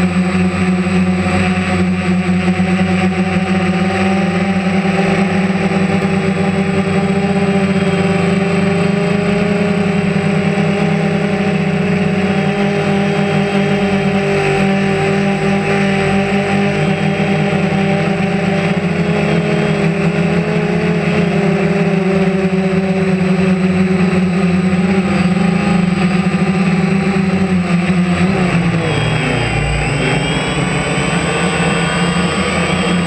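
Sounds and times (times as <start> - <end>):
drone propellers whining: 0.0 - 33.0.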